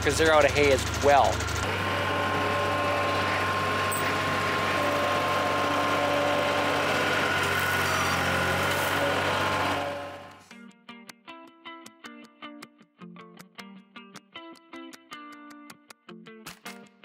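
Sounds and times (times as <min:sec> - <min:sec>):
farm vehicle engine running: 0:00.0 - 0:10.4
plucked guitar music: 0:10.4 - 0:17.0.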